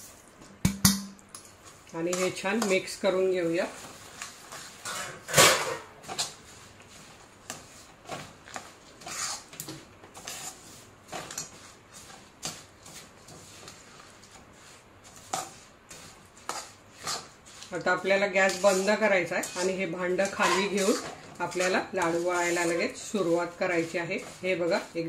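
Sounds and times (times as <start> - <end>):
metal spoon scraping a metal pan: 4.8 - 6.4, 9.0 - 9.5, 15.1 - 25.0.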